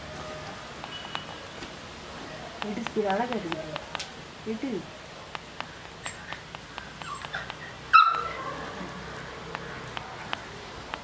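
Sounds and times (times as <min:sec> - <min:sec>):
puppy whining: 0:07.0 - 0:08.7
puppy yipping: 0:07.0 - 0:08.7.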